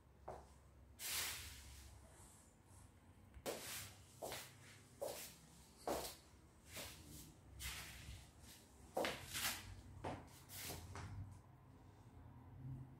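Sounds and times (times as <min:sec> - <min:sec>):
footsteps shuffling on floor: 0:03.5 - 0:11.1.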